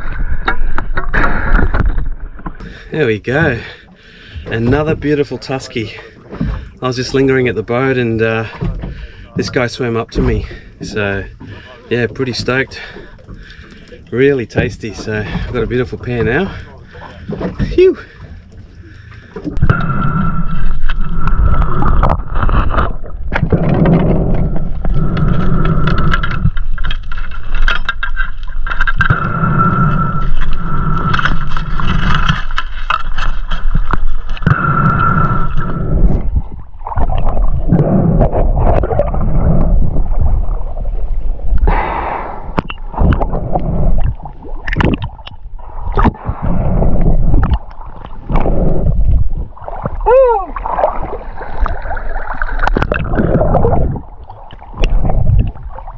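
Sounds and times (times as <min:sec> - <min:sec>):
water splashing: 0:03.4 - 0:55.9
steady whine: 0:18.3 - 0:44.2
water gurgling underwater: 0:19.5 - 0:27.6, 0:28.4 - 0:55.9.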